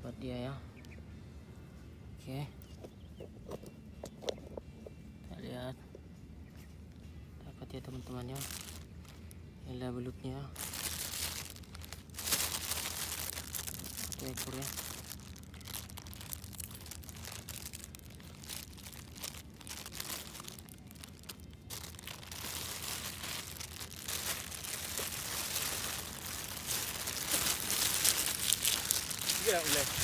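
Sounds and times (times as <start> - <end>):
plastic bag crinkling: 8.2 - 9.4, 10.5 - 30.0.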